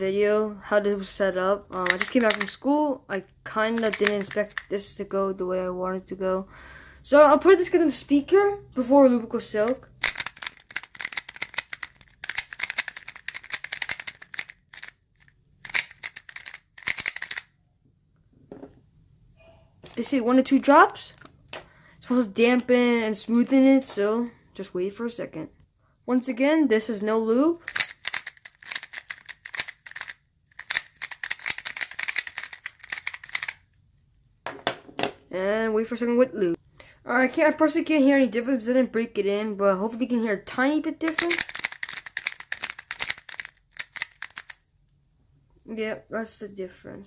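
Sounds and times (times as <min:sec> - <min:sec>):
plastic puzzle cube clicking: 0:01.7 - 0:02.6, 0:03.6 - 0:04.7, 0:10.0 - 0:17.5, 0:27.6 - 0:33.6, 0:41.1 - 0:44.6.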